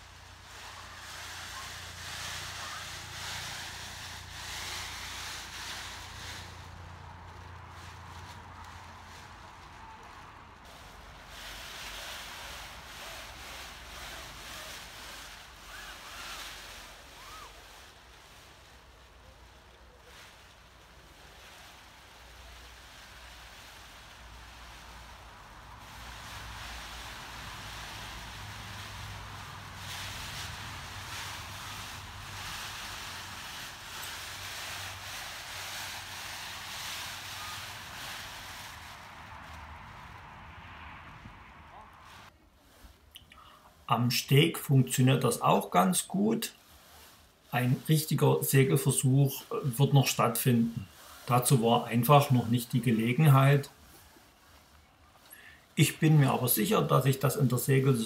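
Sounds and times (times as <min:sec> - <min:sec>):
sail cloth rustling: 0:00.0 - 0:41.1, 0:41.7 - 0:58.0
wind blowing in gusts: 0:00.0 - 0:42.3
gusty wind: 0:24.2 - 0:42.3
wind rumble on microphone: 0:37.6 - 0:42.3.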